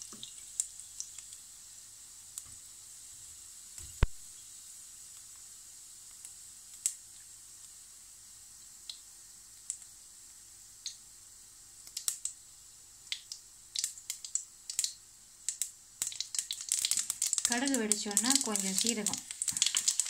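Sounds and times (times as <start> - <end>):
mustard seeds popping in oil: 0.0 - 1.5, 3.7 - 4.4, 5.1 - 7.7, 8.8 - 9.9, 11.8 - 12.4, 13.0 - 20.0.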